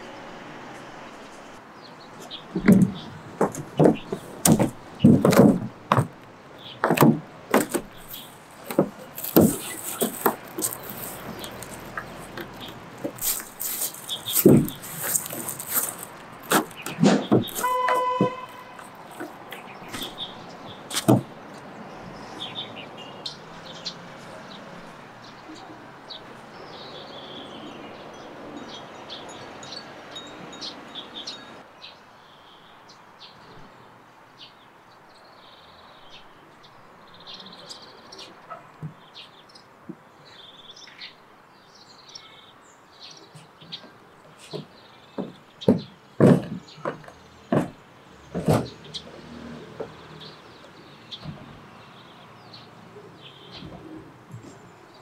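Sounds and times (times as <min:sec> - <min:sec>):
small birds chirping: 0:01.2 - 0:55.0
sharp knocks: 0:02.5 - 0:06.2, 0:06.8 - 0:10.8, 0:14.2 - 0:20.2, 0:20.9 - 0:21.3, 0:44.5 - 0:48.8.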